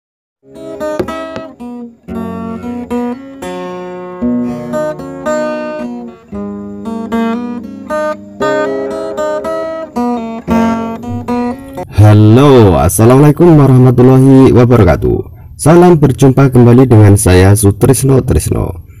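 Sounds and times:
strummed acoustic guitar chords: 0.4 - 13.9.

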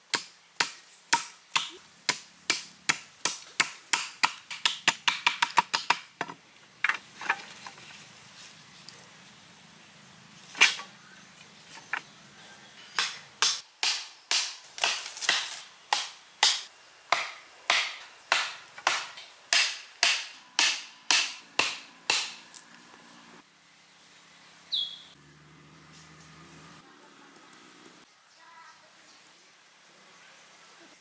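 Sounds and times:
wooden club knocking stakes: 13.0 - 22.6.

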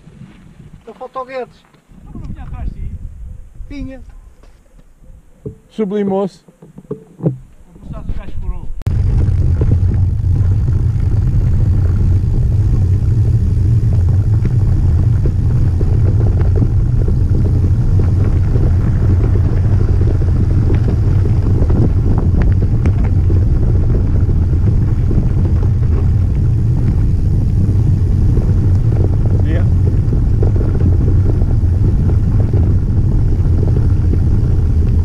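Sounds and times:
wind buffeting microphone: 0.0 - 6.2, 7.1 - 35.0
tyres rolling over gravel: 8.9 - 35.0.

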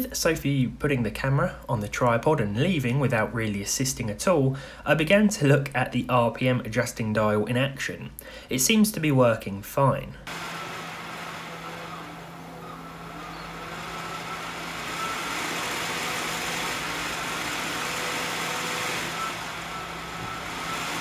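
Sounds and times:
computer fan air rush: 10.3 - 21.0
fan whine wavering in pitch: 10.3 - 21.0.

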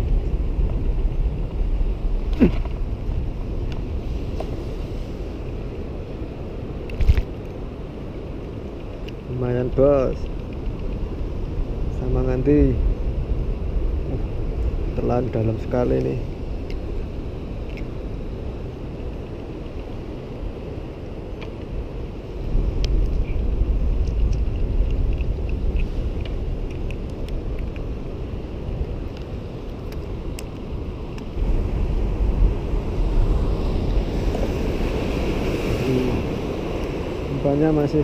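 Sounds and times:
wind buffeting microphone: 0.0 - 38.0
surf: 30.9 - 38.0.

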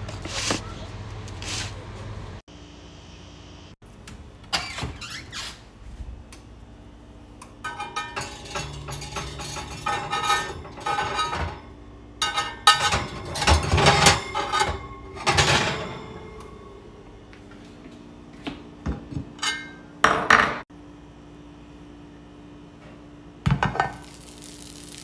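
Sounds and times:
metal plates scraping on oven rack: 7.6 - 16.8.

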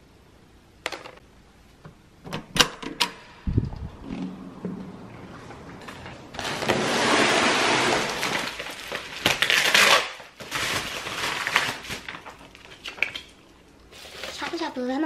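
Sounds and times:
plastic packaging crinkling: 6.3 - 15.0
sharp plastic crack: 7.8 - 13.4.

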